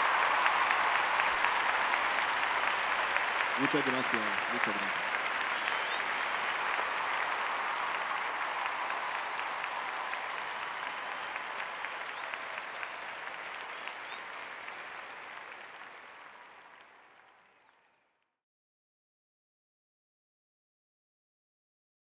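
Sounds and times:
audience applauding: 0.0s - 18.1s.

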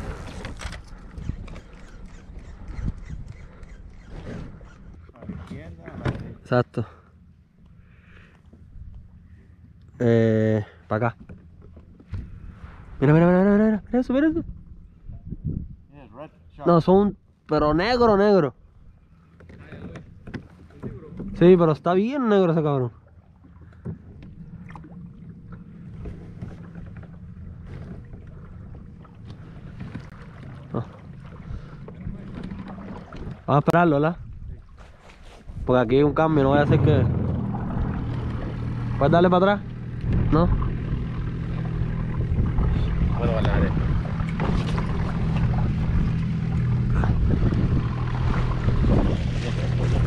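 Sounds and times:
wind rumbling on microphone: 0.0s - 6.5s, 12.0s - 16.0s, 24.0s - 50.0s
low steady hum: 4.8s - 35.0s, 35.6s - 50.0s
water splashes: 19.5s - 50.0s.

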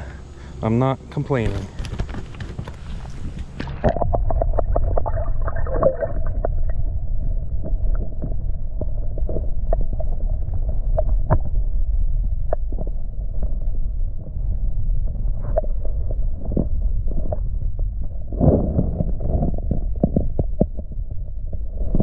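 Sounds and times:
muffled underwater creek rumble: 0.0s - 22.0s
underwater clicks and knocks: 1.7s - 11.6s, 15.4s - 22.0s.

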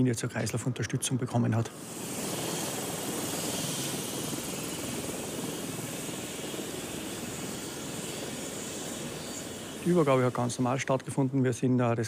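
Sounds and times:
helicopter turbine and rotor: 0.0s - 12.0s.

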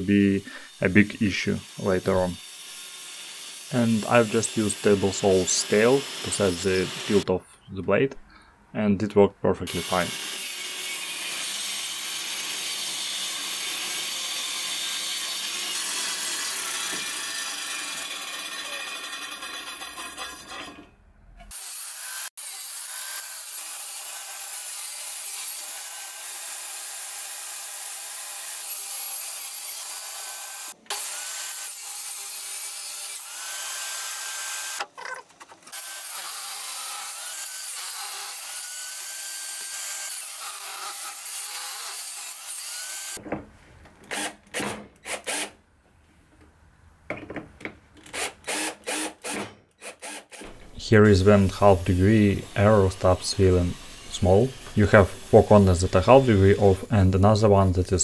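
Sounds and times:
table saw cutting wood: 0.0s - 7.3s, 9.7s - 20.9s, 21.5s - 34.9s, 35.7s - 43.2s, 48.1s - 58.0s
cordless drill driving screws: 44.1s - 45.6s, 48.0s - 50.8s.

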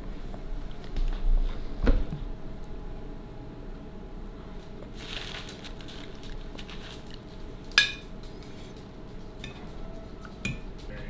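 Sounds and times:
cutlery tapping dishes: 7.8s - 8.1s, 10.3s - 10.7s
metal clinking on a plate: 7.8s - 8.1s.

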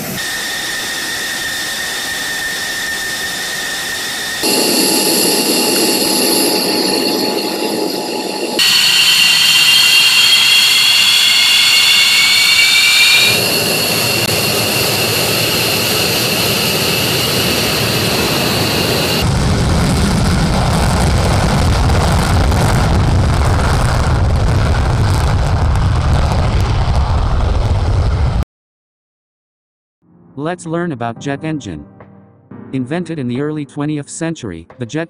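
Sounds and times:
jet taking off rumble: 0.0s - 28.4s
jet turbine whine: 0.0s - 28.4s.

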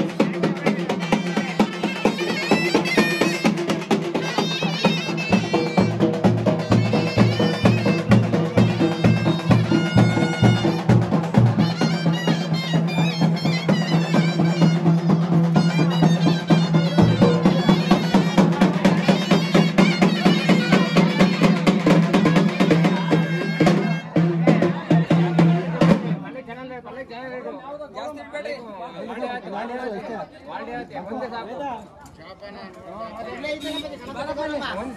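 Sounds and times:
fast dense drumming: 0.0s - 26.2s
reedy wind instrument melody: 0.8s - 25.4s.

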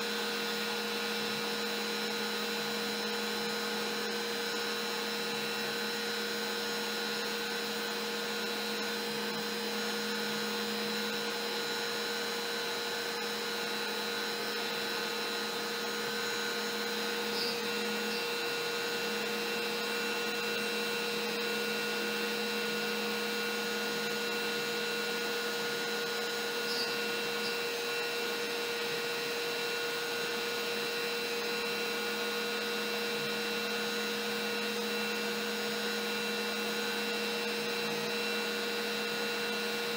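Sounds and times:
router motor whine: 0.0s - 39.9s
bit cutting wood: 13.3s - 19.6s, 26.2s - 28.5s.

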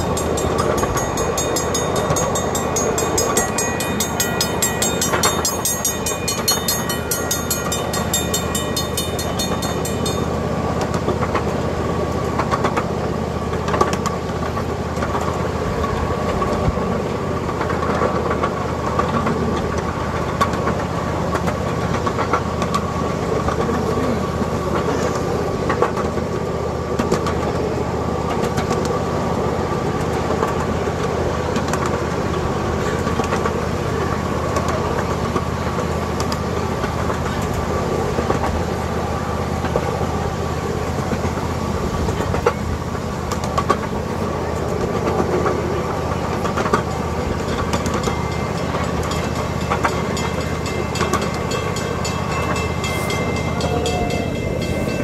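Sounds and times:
crossing signal bell ringing: 0.0s - 11.7s, 46.7s - 55.0s
miniature train rolling on track: 0.0s - 55.0s
wheels clicking over rail joints: 0.0s - 55.0s.

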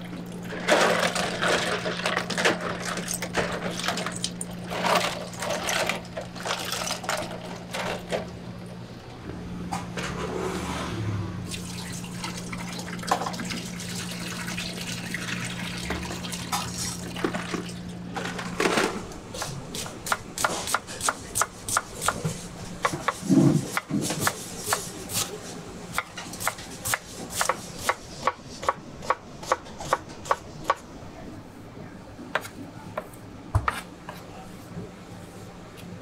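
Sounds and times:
knife chopping on cutting board: 19.8s - 25.3s, 33.6s - 34.2s.

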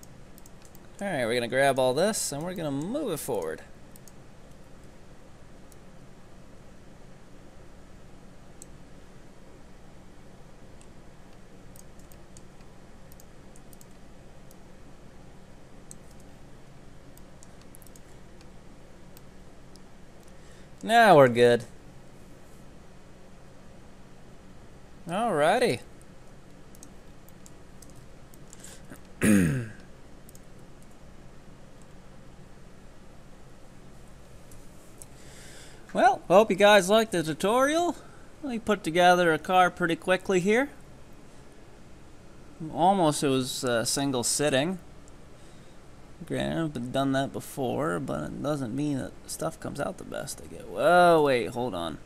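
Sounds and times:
computer mouse clicks: 0.0s - 1.0s, 3.9s - 5.0s, 10.8s - 14.6s, 15.8s - 16.3s, 17.1s - 18.5s, 26.5s - 29.1s, 30.2s - 31.0s
steady low hum: 0.0s - 52.0s.

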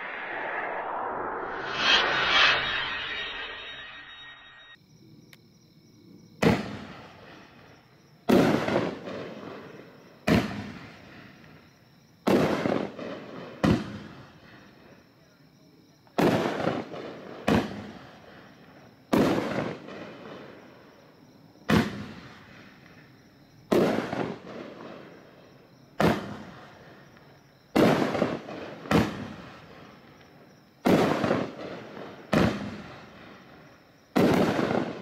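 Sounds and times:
fireworks bangs: 8.3s - 11.0s, 12.3s - 14.1s, 16.2s - 17.9s, 23.7s - 25.1s, 26.0s - 26.6s, 27.8s - 29.6s, 30.8s - 33.4s, 34.1s - 35.0s.

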